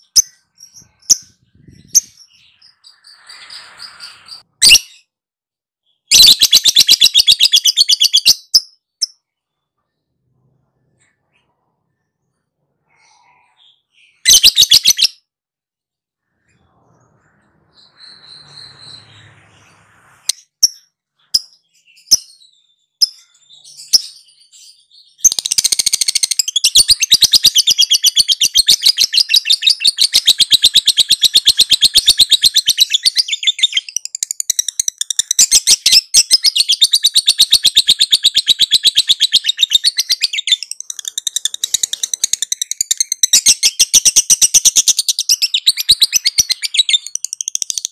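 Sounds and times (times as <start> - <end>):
bird chirps: 0.0 - 5.2, 5.8 - 15.3, 16.2 - 47.9.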